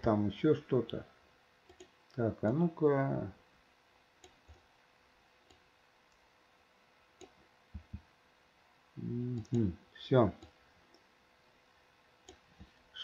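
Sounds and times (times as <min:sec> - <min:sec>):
soft low thumps: 0:07.7 - 0:08.1.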